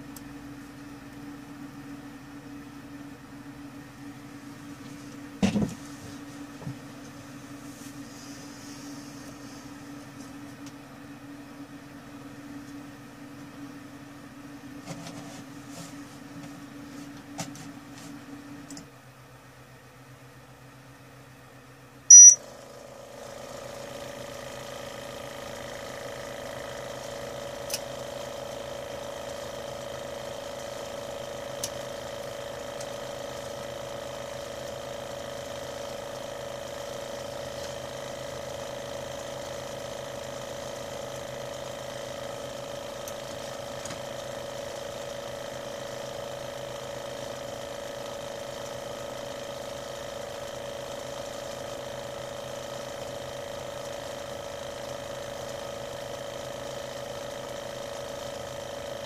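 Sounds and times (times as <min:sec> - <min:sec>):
steady motor hum: 0:00.0 - 0:59.0
short high beep: 0:22.1 - 0:22.4.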